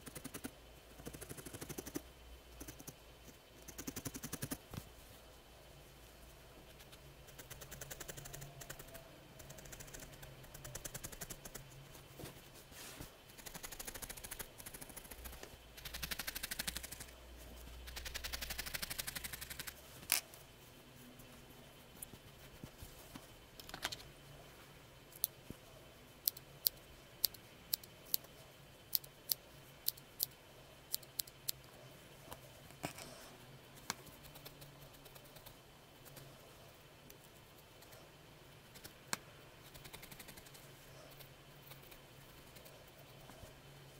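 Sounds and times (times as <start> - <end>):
faint handling of wool: 11.7 - 13.3, 19.7 - 23.6.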